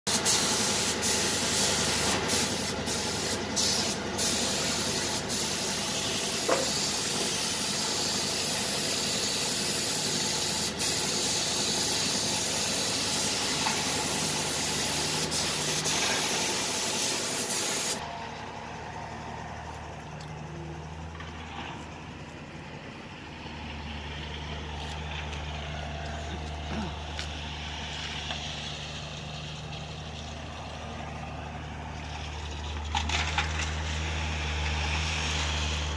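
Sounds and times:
spray gun hissing: 0.1 - 18.0
low motor hum: 11.6 - 35.9.

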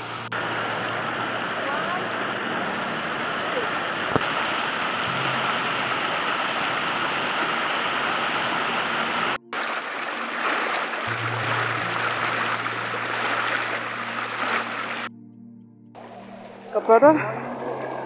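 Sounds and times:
river rushing over stones: 0.0 - 15.1.

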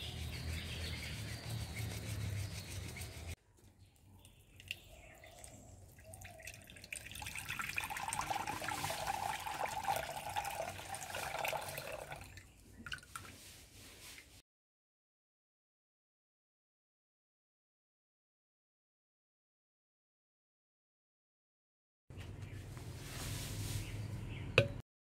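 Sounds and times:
outdoor background sound: 0.0 - 14.4, 22.1 - 24.8
water trickling into a bowl: 4.4 - 13.3.

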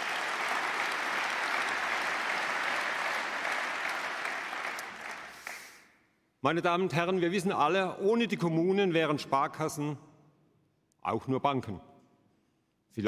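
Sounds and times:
large audience applauding: 0.0 - 5.8.

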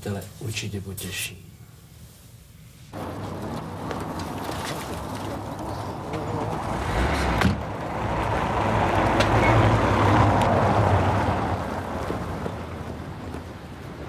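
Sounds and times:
car driving by: 3.0 - 14.0.

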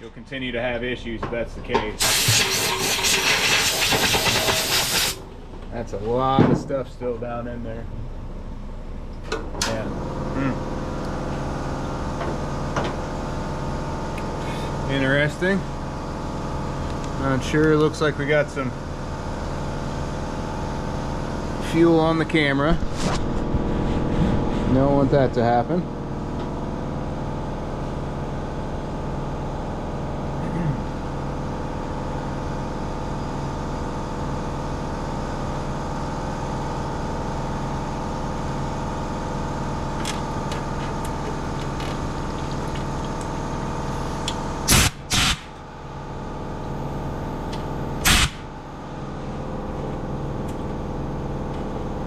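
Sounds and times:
steady mechanical hum: 0.0 - 52.0
compressed air blasts: 2.0 - 5.2, 44.7 - 45.6, 48.0 - 48.5.

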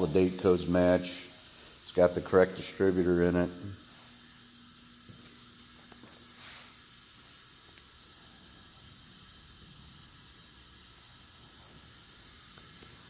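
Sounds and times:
faint room tone hiss: 0.0 - 13.0
soft rustle: 5.9 - 6.8.

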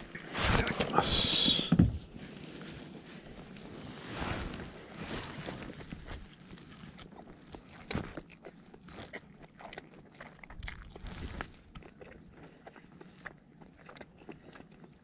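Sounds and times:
person chewing crunchy food: 4.6 - 15.0.

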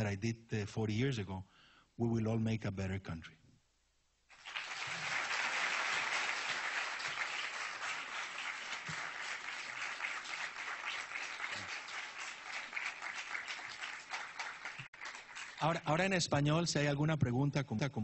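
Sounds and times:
audience applauding: 4.3 - 15.9.

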